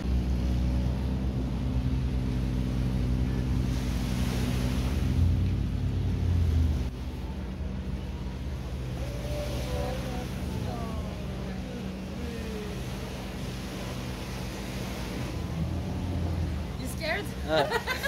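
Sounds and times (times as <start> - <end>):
boat engine running: 0.0 - 18.0
sea wash: 0.0 - 18.0.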